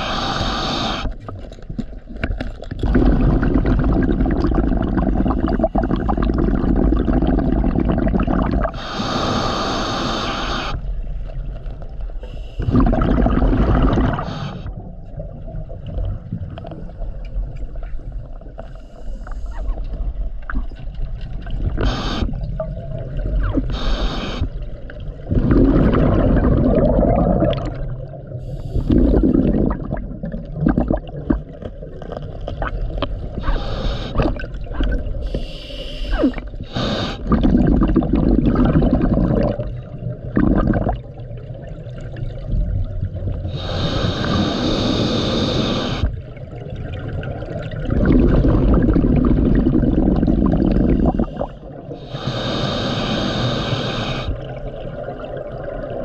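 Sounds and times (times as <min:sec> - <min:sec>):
hissing regulator inhalations: 0:00.0 - 0:01.2, 0:08.7 - 0:10.8, 0:14.1 - 0:14.8, 0:21.8 - 0:22.4, 0:23.7 - 0:24.6, 0:28.4 - 0:29.4, 0:33.4 - 0:34.4, 0:35.2 - 0:37.4, 0:43.5 - 0:46.2, 0:50.9 - 0:54.4
low rumble of water: 0:01.0 - 0:09.3, 0:10.6 - 0:56.0
gurgling exhaled bubbles: 0:02.6 - 0:11.5, 0:12.4 - 0:17.5, 0:19.4 - 0:56.0.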